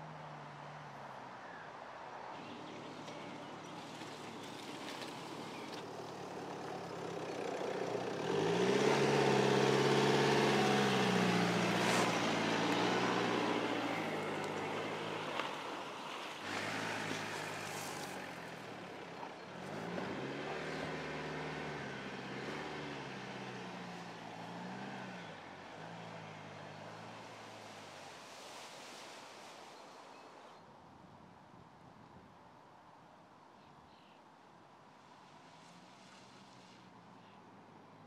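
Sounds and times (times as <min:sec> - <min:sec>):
diesel engine pulling off-road: 0:02.4 - 0:30.0
tyres crunching on dirt: 0:08.0 - 0:22.9.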